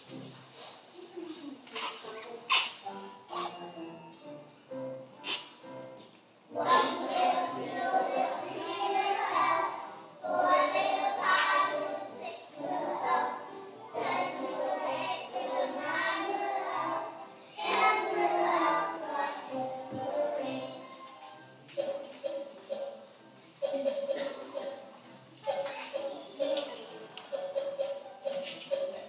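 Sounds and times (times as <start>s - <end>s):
musical accompaniment: 2.8s - 29.0s
young children singing: 6.5s - 21.1s.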